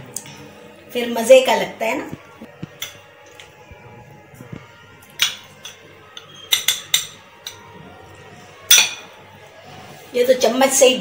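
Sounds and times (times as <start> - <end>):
metal spoon clinking on glass bowls: 2.7 - 3.5, 5.1 - 7.7, 8.7 - 9.1.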